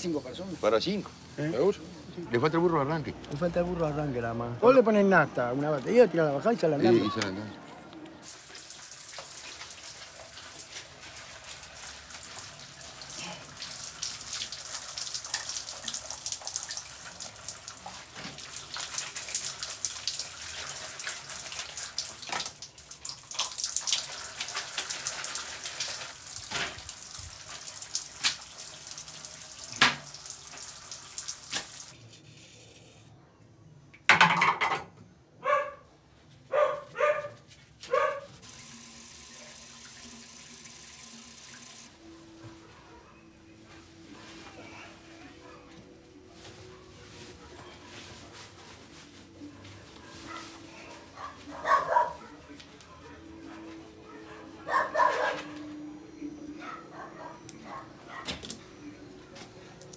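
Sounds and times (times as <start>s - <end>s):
running water: 8.2s - 32.0s, 38.4s - 59.9s
dog barking: 35.4s - 38.4s, 50.0s - 55.9s, 56.5s - 58.4s.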